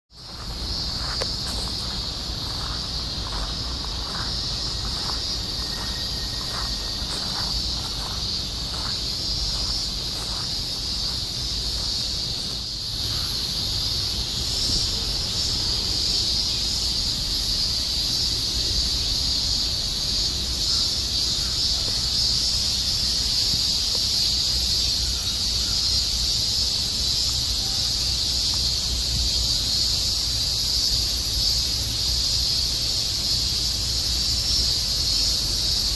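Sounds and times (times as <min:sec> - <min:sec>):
insects chorus: 0:00.1 - 0:35.9
footsteps on gravel: 0:00.2 - 0:13.2.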